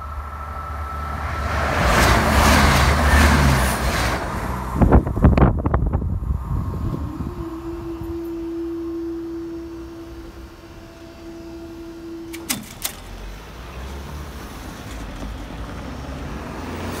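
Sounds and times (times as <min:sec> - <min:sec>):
barrier motor humming: 0:00.0 - 0:17.0
cars driving past rumbling: 0:00.0 - 0:17.0
barrier clicks: 0:12.2 - 0:13.2.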